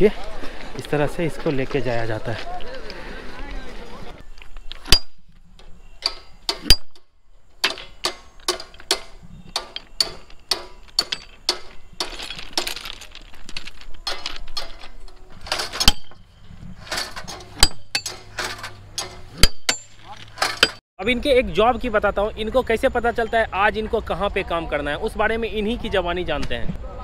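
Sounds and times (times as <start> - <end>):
hammer striking steel rail: 7.6 - 11.7, 17.3 - 20.8.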